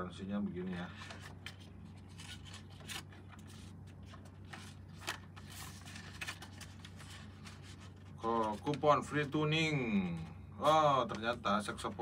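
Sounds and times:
paper rustling and crinkling: 0.6s - 9.3s.

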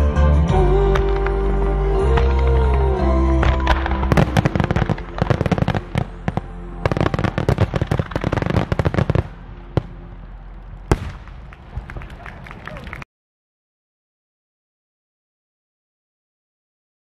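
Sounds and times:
show music with sustained chords: 0.0s - 11.8s
fireworks bangs and crackles: 0.9s - 10.0s, 10.6s - 12.2s.

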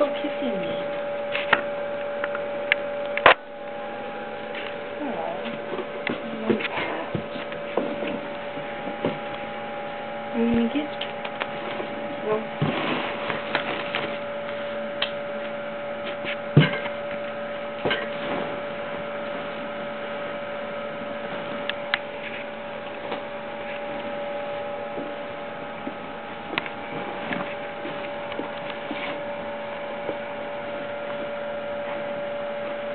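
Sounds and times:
electrical hum: 0.0s - 32.9s.

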